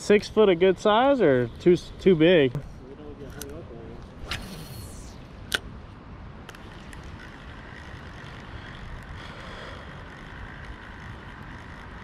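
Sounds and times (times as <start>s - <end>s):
wind rumbling on microphone: 3.2s - 12.0s.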